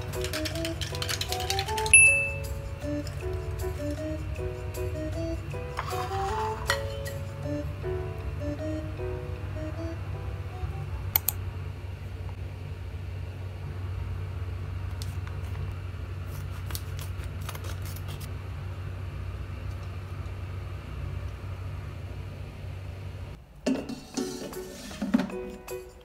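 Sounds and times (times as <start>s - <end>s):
steady low hum: 0.0s - 5.8s, 6.5s - 23.6s
plastic crinkling: 16.3s - 18.3s.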